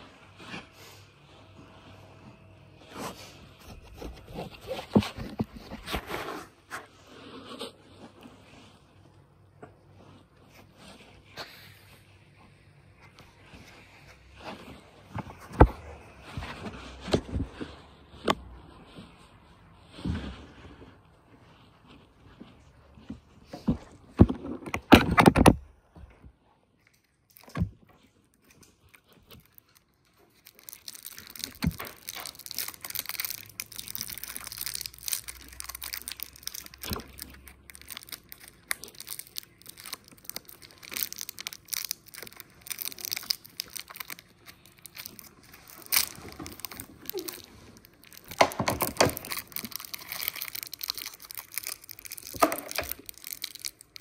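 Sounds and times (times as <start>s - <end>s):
sweet wrappers crinkling: 26.8s - 54.0s.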